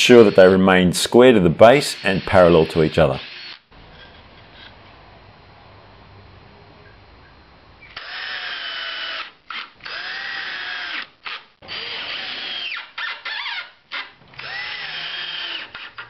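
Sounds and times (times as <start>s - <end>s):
cordless drill motor whine: 1.9s - 4.7s, 7.9s - 13.6s, 14.3s - 16.0s.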